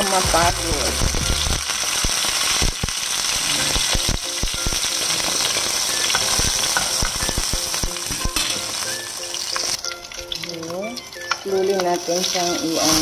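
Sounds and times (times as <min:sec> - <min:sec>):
fish sizzling in frying pan: 0:00.0 - 0:13.0.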